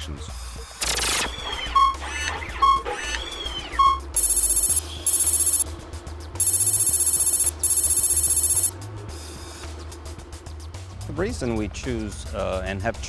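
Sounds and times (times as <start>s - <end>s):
electronic telephone-like trilling: 0.8s - 5.6s, 6.4s - 8.7s.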